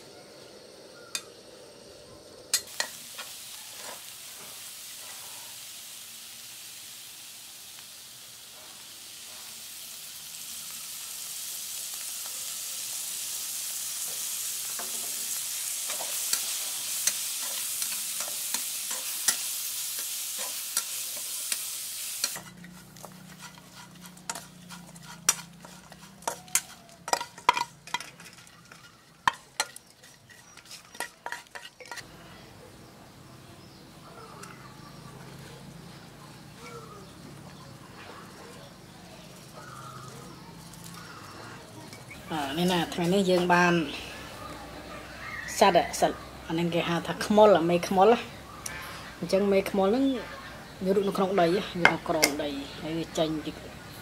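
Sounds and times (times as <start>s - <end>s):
insects frying in oil: 0.2s - 54.0s
spatula scraping a pan: 2.5s - 5.5s, 14.0s - 32.1s
spatula clinking on metal plate: 15.9s - 32.0s.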